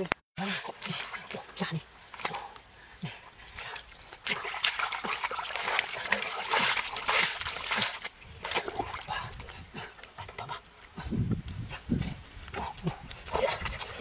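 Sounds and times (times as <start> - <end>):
hands splashing through mud: 4.1 - 9.0.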